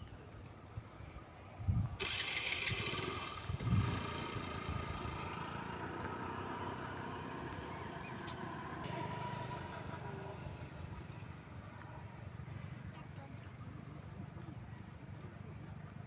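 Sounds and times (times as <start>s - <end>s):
small engine running: 2.0s - 12.4s.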